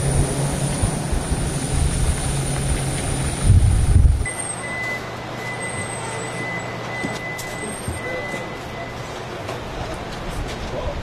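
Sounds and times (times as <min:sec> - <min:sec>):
wind on microphone: 0:00.0 - 0:04.3
jet turbine whine: 0:00.0 - 0:10.8
high electronic beep: 0:04.2 - 0:09.2.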